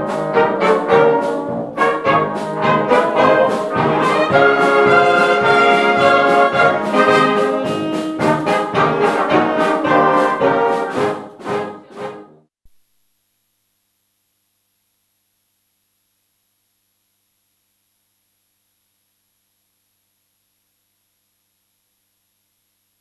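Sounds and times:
brass orchestra playing: 0:00.0 - 0:12.4.

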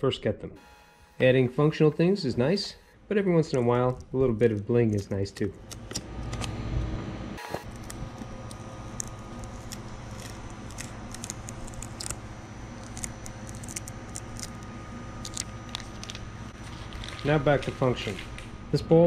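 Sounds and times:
low hum: 0:00.6 - 0:19.0
transfer tape crackling and clicking: 0:07.4 - 0:18.5.

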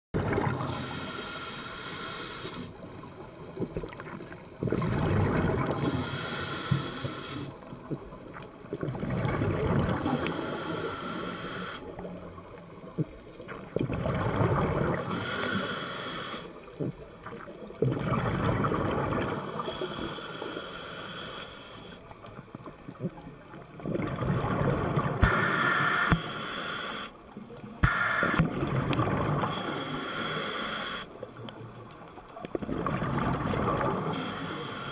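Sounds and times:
regulator inhale hissing: 0:00.7 - 0:02.8, 0:05.7 - 0:07.6, 0:10.0 - 0:11.9, 0:14.9 - 0:16.7, 0:19.3 - 0:22.1, 0:25.2 - 0:27.2, 0:27.8 - 0:28.4, 0:29.4 - 0:31.2, 0:33.9 - 0:34.9
exhaled bubbles rushing: 0:04.6 - 0:05.8, 0:08.8 - 0:10.1, 0:13.8 - 0:15.1, 0:17.8 - 0:19.4, 0:23.7 - 0:25.2, 0:28.5 - 0:29.6, 0:32.6 - 0:34.1.

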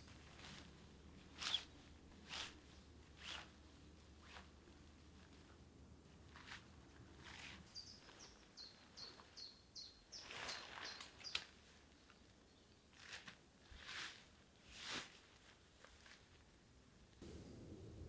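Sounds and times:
tent fabric rustling: 0:00.0 - 0:09.4, 0:10.2 - 0:12.3, 0:12.9 - 0:16.6
small bird singing: 0:07.7 - 0:12.9.

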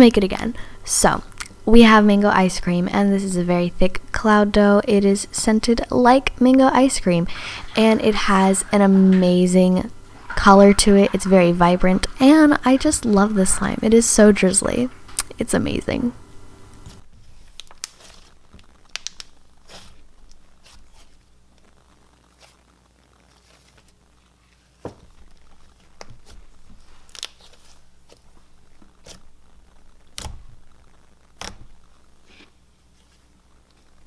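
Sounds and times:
slime being stretched and poked: 0:16.9 - 0:21.7, 0:25.5 - 0:29.3, 0:30.0 - 0:30.6, 0:31.4 - 0:32.5
sticky pops and clicks: 0:17.6 - 0:19.4.

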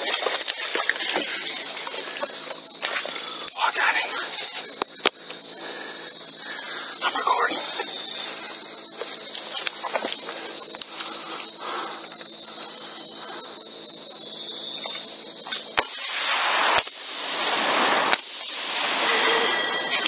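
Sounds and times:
night insects chorus: 0:00.0 - 0:20.0
sharp cracks: 0:15.5 - 0:20.0
rough noisy rushing: 0:15.8 - 0:20.0.

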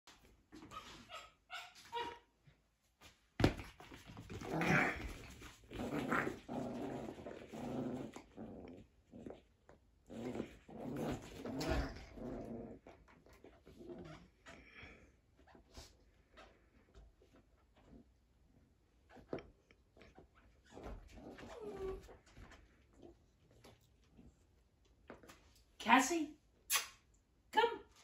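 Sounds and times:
puppy growling: 0:04.2 - 0:14.5, 0:20.7 - 0:24.3.

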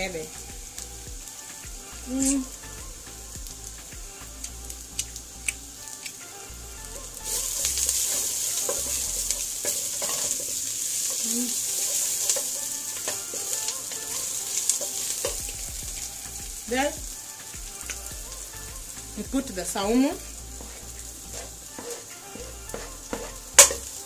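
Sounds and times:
onions sizzling in hot oil: 0:00.0 - 0:24.0
wooden spoon scraping a pot: 0:06.9 - 0:15.4, 0:19.6 - 0:24.0.

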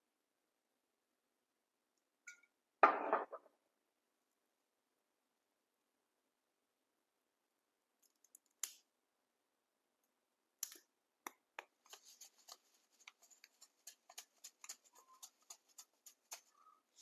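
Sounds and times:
sesame seeds ticking into bowl: 0:10.6 - 0:16.8.

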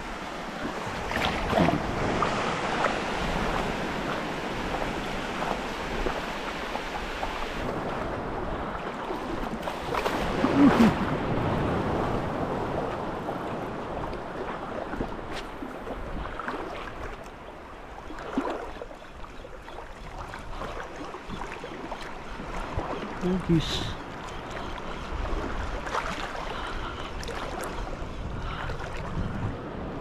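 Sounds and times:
waves washing on shore: 0:00.0 - 0:30.0
wind buffeting microphone: 0:24.0 - 0:30.0.

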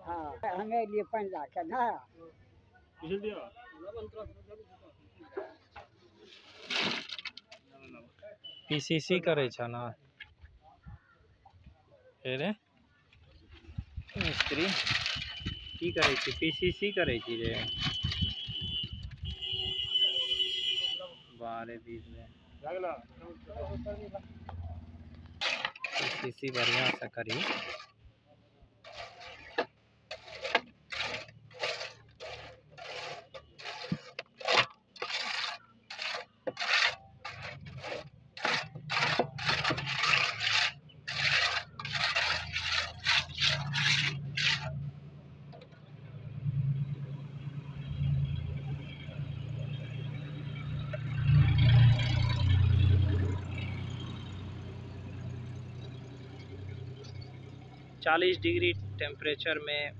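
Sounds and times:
tool scraping wet concrete: 0:14.1 - 0:19.2, 0:25.3 - 0:28.0, 0:28.8 - 0:44.8.

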